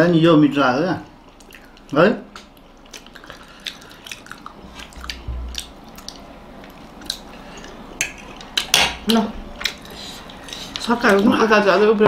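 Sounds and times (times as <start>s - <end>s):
chewing soft food: 1.1s - 8.6s
low bump: 5.0s - 5.7s.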